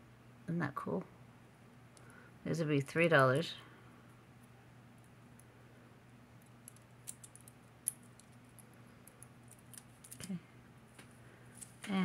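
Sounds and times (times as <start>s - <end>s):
metal jewelry clicking: 6.4s - 10.3s.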